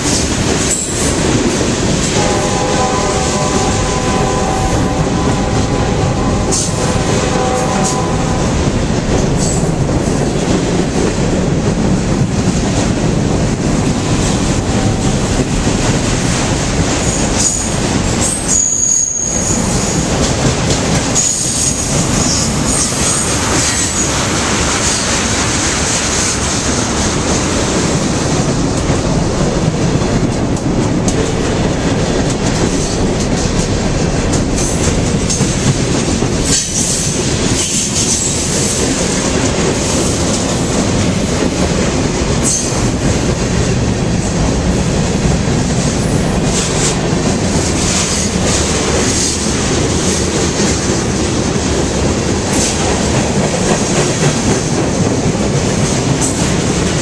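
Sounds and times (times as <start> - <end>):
train wheels rumbling on rails: 0.0 - 57.0
high-pitched wheel squeal: 17.4 - 20.1.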